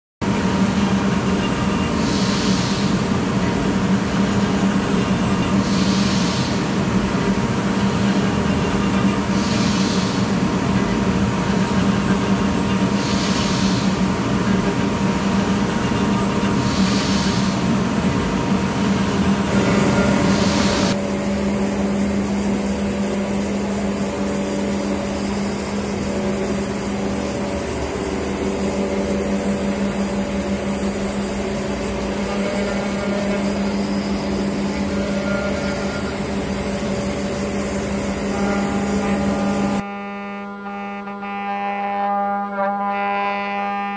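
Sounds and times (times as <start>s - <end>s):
cnc router spindle humming: 0.2s - 43.9s
cutter hissing: 1.9s - 3.2s, 5.5s - 6.8s, 9.2s - 10.5s, 12.9s - 14.2s, 16.5s - 17.8s, 18.8s - 21.0s.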